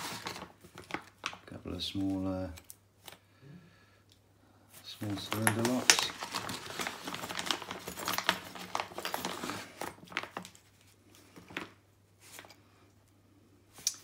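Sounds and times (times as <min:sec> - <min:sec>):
plastic bag crinkling: 0:00.0 - 0:03.2, 0:04.8 - 0:12.5.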